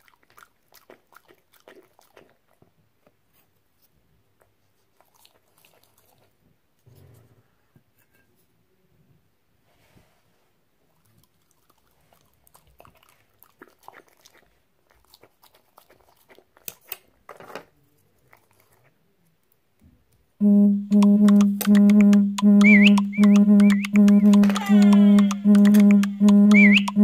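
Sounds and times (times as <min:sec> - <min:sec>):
dog chewing and smacking lips: 0:00.0 - 0:03.2, 0:04.4 - 0:06.4, 0:10.9 - 0:17.2, 0:18.2 - 0:19.0.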